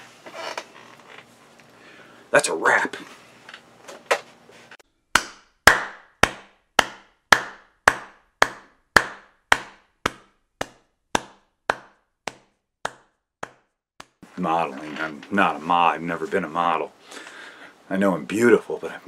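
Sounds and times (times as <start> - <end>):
sharp knocks: 5.1 - 14.2.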